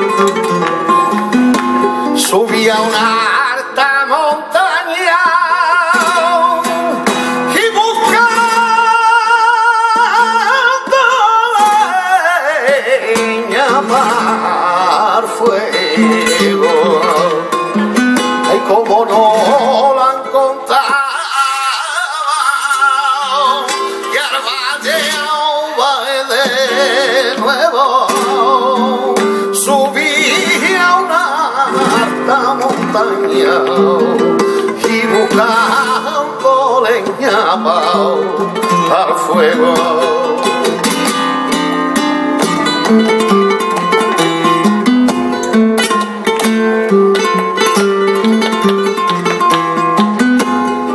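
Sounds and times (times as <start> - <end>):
hand clapping: 0.0 - 3.0
flamenco guitar: 0.0 - 50.9
man singing: 1.8 - 50.9.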